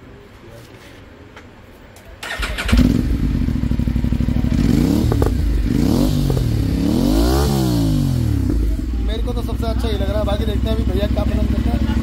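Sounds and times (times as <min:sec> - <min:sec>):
motorcycle engine starting and idling: 0:02.1 - 0:12.0
engine revving: 0:02.2 - 0:08.9.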